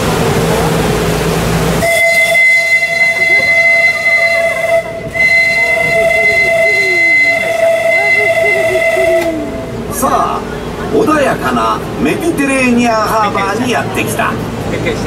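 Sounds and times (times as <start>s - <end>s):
rushing engine and water noise: 0.0s - 15.0s
steamboat whistle blasts: 1.8s - 9.8s.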